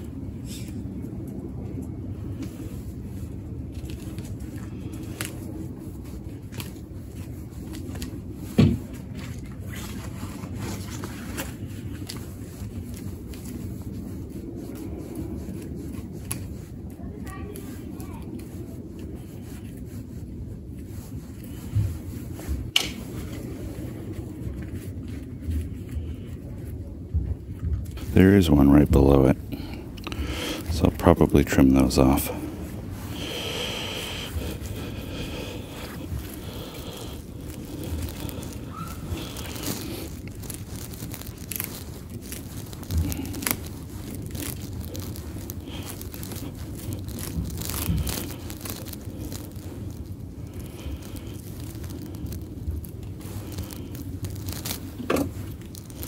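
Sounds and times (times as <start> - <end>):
low wind rumble on microphone: 0.0 - 56.0
hook scratching through roots: 3.7 - 26.1, 29.9 - 56.0.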